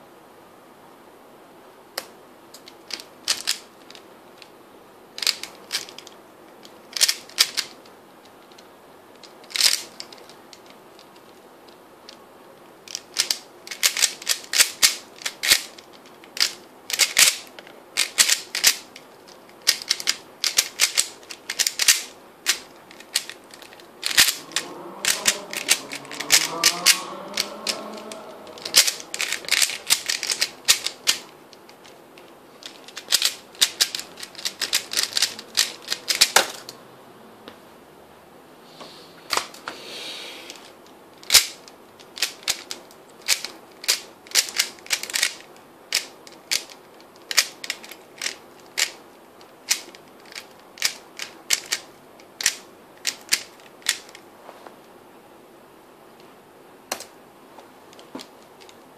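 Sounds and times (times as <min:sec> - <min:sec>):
puzzle cube clicking: 0:02.0 - 0:04.5, 0:05.2 - 0:07.8, 0:09.2 - 0:11.4, 0:12.8 - 0:19.0, 0:19.6 - 0:32.0, 0:32.6 - 0:36.7, 0:40.5 - 0:49.0, 0:49.7 - 0:54.2.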